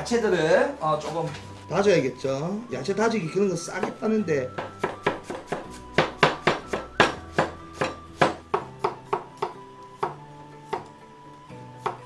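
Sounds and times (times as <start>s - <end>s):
cleaver chopping on wooden board: 3.8s - 10.9s, 11.8s - 12.0s.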